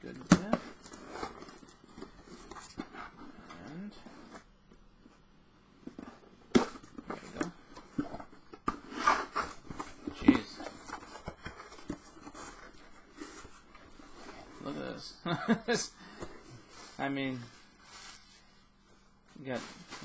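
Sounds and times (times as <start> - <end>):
cardboard scraping and rustling: 0.1 - 4.5, 5.8 - 15.0, 19.4 - 20.0.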